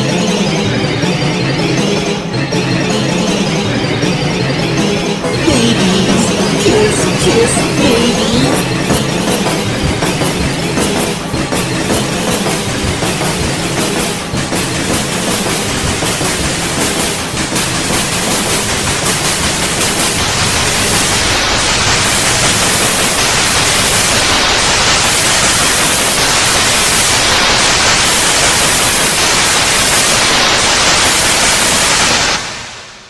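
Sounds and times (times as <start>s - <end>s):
loud static noise: 16.1s - 33.0s.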